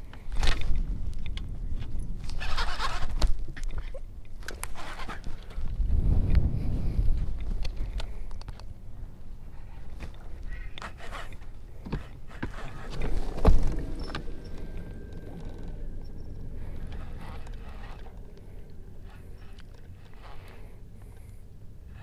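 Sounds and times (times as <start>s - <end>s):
wind rumble on microphone: 0.0s - 22.0s
fishing rod and reel clicking: 13.9s - 22.0s.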